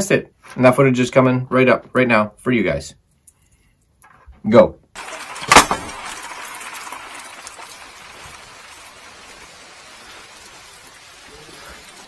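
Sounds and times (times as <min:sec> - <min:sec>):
rain pattering on wood and trees: 0:05.0 - 0:12.0
water drips ticking: 0:05.0 - 0:12.0.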